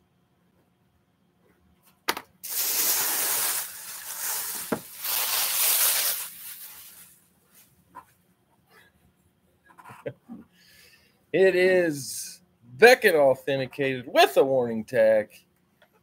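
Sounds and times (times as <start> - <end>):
plastic bag rustling: 2.5 - 7.8.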